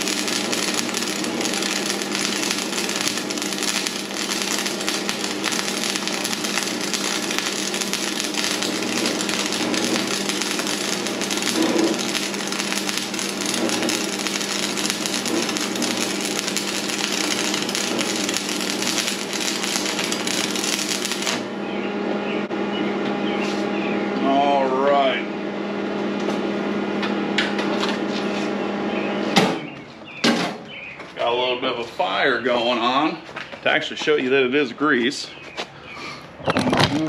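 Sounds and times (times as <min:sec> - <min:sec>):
welding arc crackling: 0:00.0 - 0:21.6
steady welder hum: 0:00.0 - 0:29.8.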